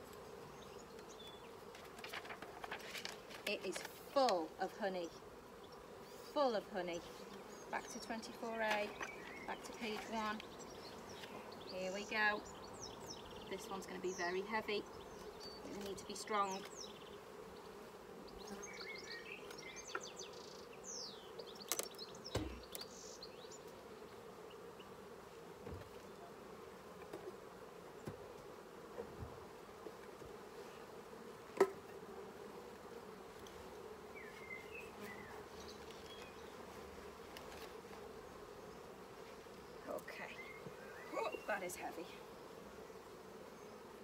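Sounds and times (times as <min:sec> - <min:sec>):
honeybees humming: 0:00.0 - 0:44.0
knocks on hive box: 0:22.3 - 0:22.7, 0:31.6 - 0:31.8.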